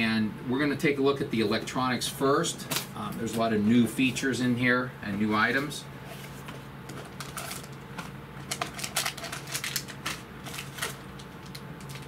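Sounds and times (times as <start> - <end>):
cardboard packaging handled: 6.1 - 12.0.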